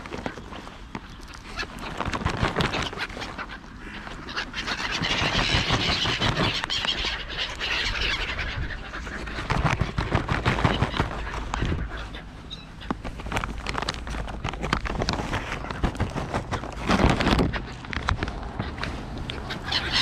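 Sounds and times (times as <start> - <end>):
gulls calling: 0.0 - 20.0
crows calling: 2.6 - 10.0, 18.6 - 20.0.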